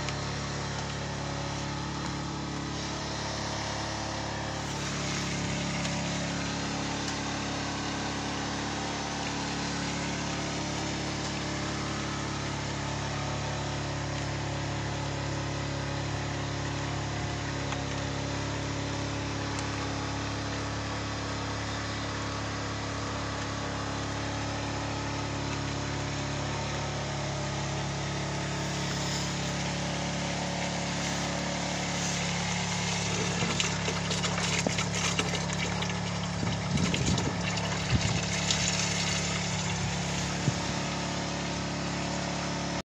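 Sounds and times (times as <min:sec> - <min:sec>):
water pump humming: 0:00.0 - 0:42.8
water splashing into bottles: 0:32.2 - 0:40.7.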